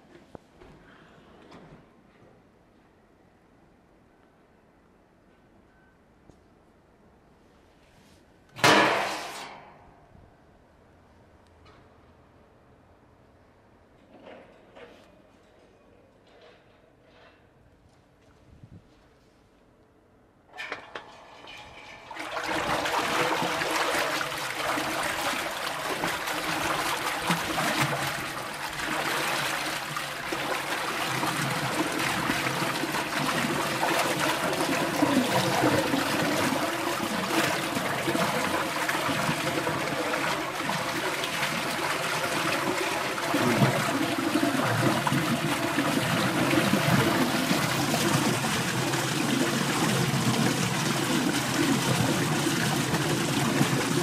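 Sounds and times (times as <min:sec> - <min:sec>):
water churning and splashing: 0:21.3 - 0:54.0.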